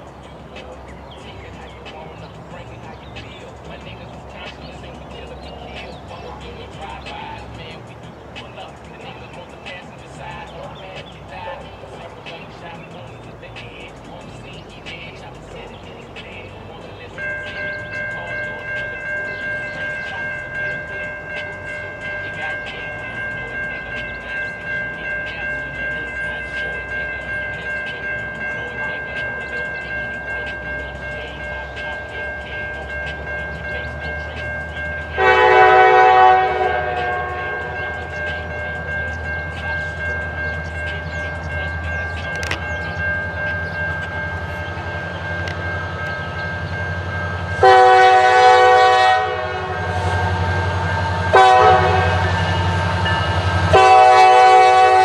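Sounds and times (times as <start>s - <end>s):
crossing bell ringing: 0.0s - 55.0s
diesel locomotive rumble: 0.0s - 55.0s
train horn blast: 33.8s - 42.6s, 43.2s - 55.0s.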